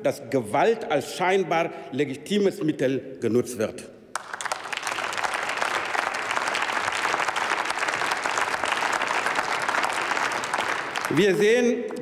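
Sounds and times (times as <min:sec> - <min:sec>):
dense steady clapping: 0:04.1 - 0:12.0.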